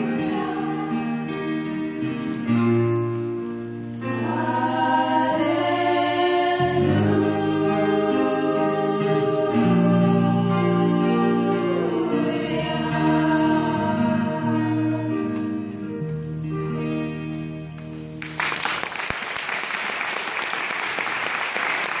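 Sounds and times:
female vocal ensemble singing: 0.0 - 1.9, 4.0 - 15.6
audience applause: 18.2 - 22.0.

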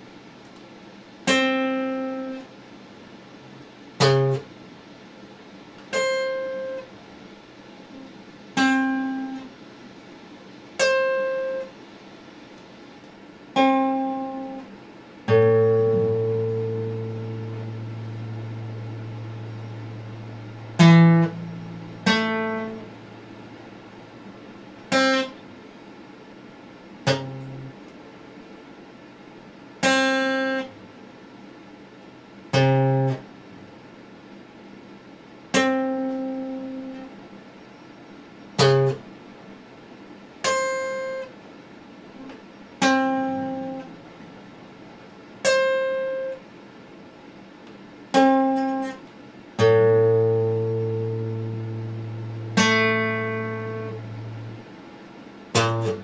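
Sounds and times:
acoustic guitar plucked notes: 1.3 - 2.4, 4.0 - 4.5, 5.9 - 6.9, 7.9 - 9.5, 10.8 - 11.7, 13.5 - 24.2, 24.8 - 25.4, 27.0 - 27.8, 29.8 - 30.7, 32.5 - 33.3, 35.5 - 37.2, 38.6 - 39.1, 40.4 - 41.3, 42.8 - 44.0, 45.4 - 46.4, 48.1 - 49.0, 49.6 - 54.7, 55.5 - 56.0.

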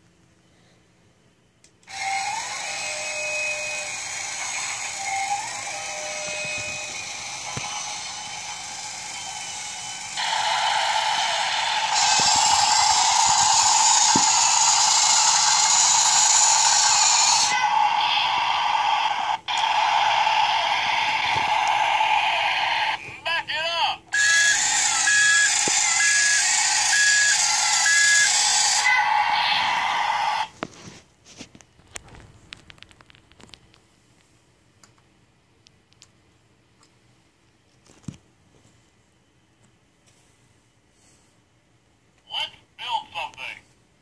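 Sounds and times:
toy engine sound effects: 1.9 - 23.2, 24.1 - 30.5.

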